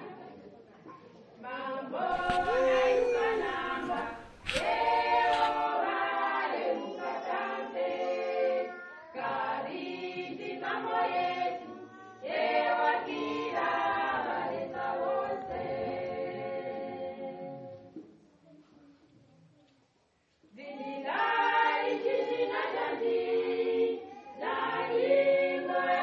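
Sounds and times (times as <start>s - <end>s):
choir singing: 1.5s - 17.9s, 20.6s - 26.0s.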